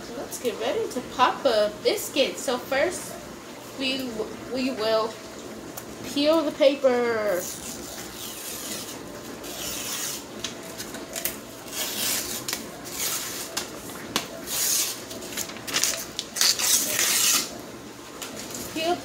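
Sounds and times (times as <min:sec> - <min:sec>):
paper label tearing: 0:07.4 - 0:10.3, 0:10.9 - 0:13.7, 0:14.4 - 0:17.6.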